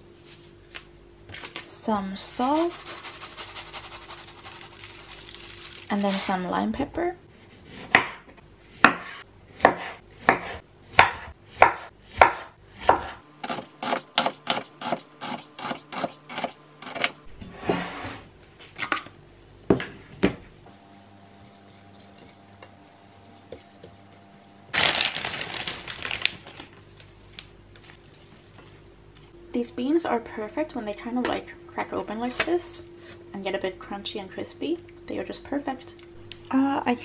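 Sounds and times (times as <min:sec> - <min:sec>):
plastic bag rustling: 0:02.5 - 0:06.4, 0:24.7 - 0:27.2.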